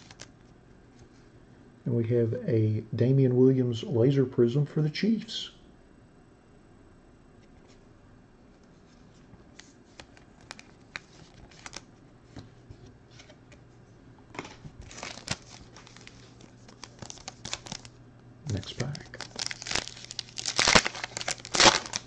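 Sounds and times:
foil wrapper crinkling being torn: 0.0s - 0.4s, 9.9s - 11.9s, 14.5s - 22.0s.

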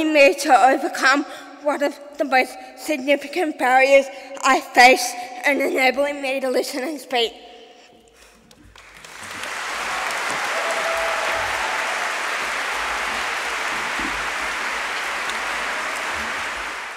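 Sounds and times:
audience applause: 8.8s - 16.9s.

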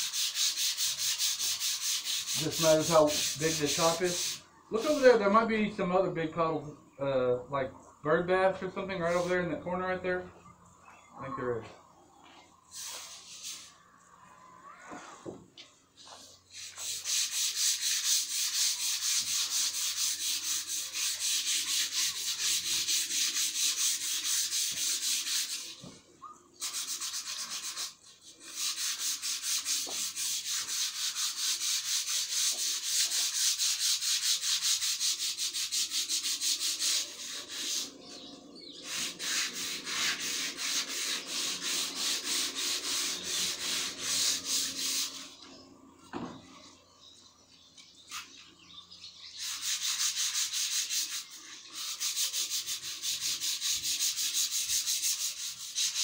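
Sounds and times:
sandpaper rubbing on wood: 0.0s - 5.3s, 9.0s - 9.5s, 12.7s - 13.8s, 16.0s - 25.9s, 26.6s - 45.4s, 49.4s - 56.0s.

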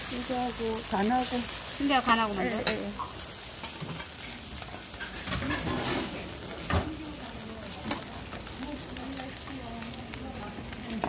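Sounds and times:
egg sizzling on a griddle: 0.0s - 11.0s
metal spatula scraping: 2.0s - 6.2s.

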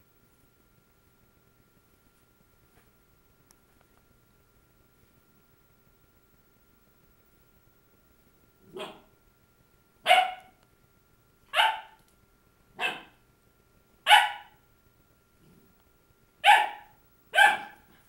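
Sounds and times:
puppy barking: 8.7s - 9.1s, 10.0s - 10.6s, 11.5s - 12.0s, 12.8s - 13.2s, 14.1s - 14.6s, 16.4s - 18.0s.

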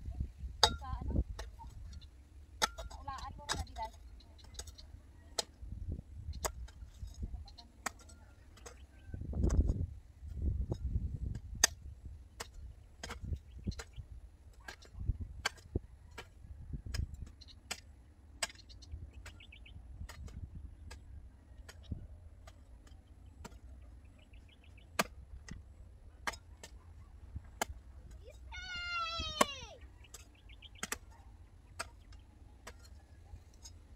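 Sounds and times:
wind rumble on microphone: 0.0s - 2.1s, 5.5s - 7.6s, 8.8s - 14.2s, 14.9s - 17.3s, 19.0s - 21.2s
hoe chopping into dry soil: 11.2s - 13.9s, 24.9s - 25.6s.

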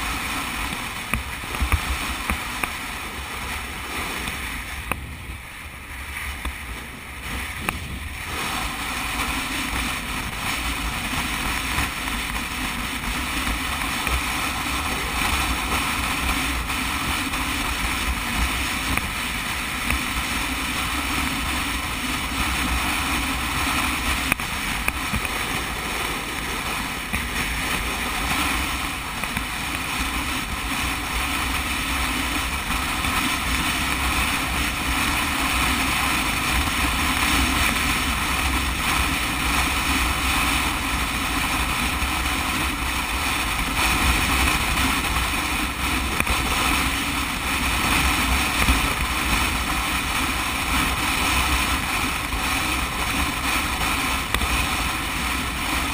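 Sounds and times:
motorcycle engine drone: 0.0s - 55.9s
wind buffeting microphone: 0.0s - 55.9s.

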